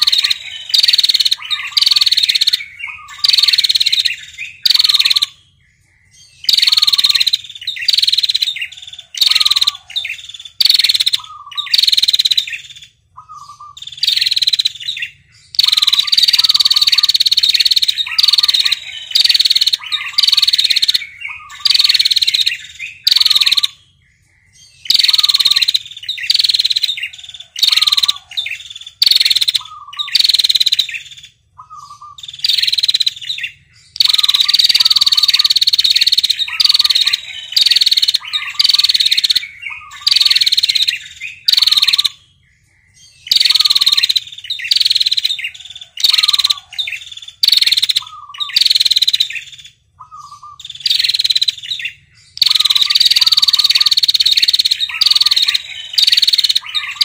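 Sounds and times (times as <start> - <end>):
bird rattling trill: 0.0 - 5.3, 6.5 - 12.8, 15.6 - 23.8, 24.9 - 31.2, 34.0 - 42.2, 43.3 - 49.4, 52.4 - 57.0.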